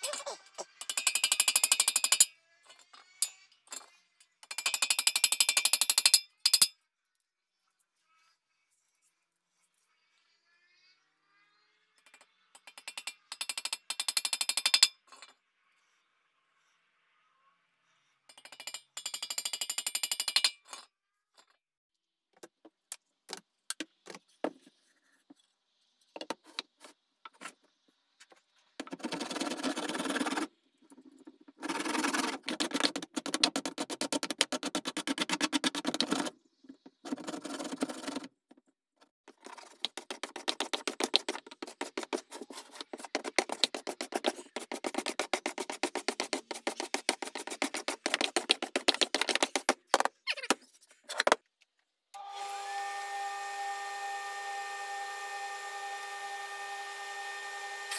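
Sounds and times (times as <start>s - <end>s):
hand plane cutting wood: 31.6s - 36.3s, 39.5s - 49.8s.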